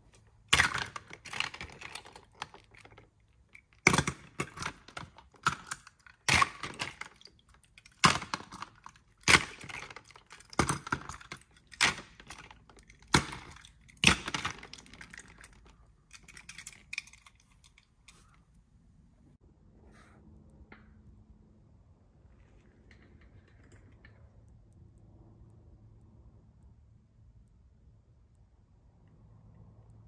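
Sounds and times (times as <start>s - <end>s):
plastic toy parts clacking: 0.0s - 18.6s.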